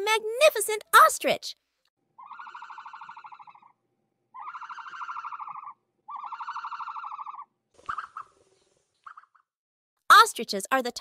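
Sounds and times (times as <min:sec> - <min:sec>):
rattling ostrich call: 0:02.2 - 0:03.8, 0:04.4 - 0:08.4.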